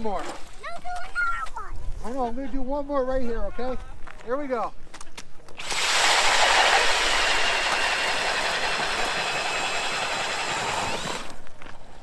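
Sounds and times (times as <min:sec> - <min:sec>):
power drill boring through ice: 0:05.6 - 0:11.5.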